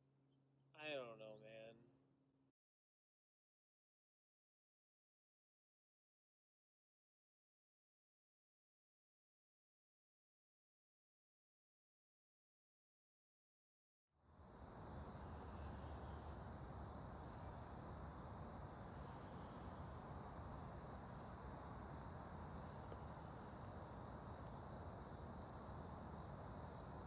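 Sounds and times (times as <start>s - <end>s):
crickets chirping: 14.2s - 27.0s.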